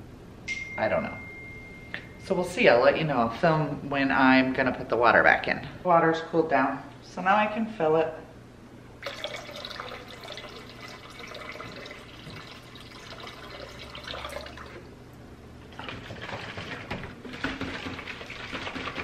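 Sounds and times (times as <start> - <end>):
water pouring into tank: 9.0 - 15.0.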